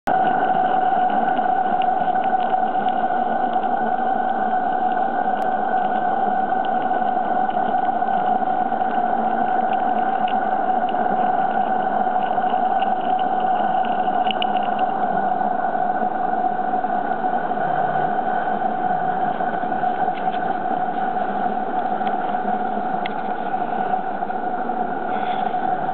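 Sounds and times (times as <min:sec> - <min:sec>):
steady hum: 0:00.1 - 0:25.9
faint light clicks: 0:12.2 - 0:14.9.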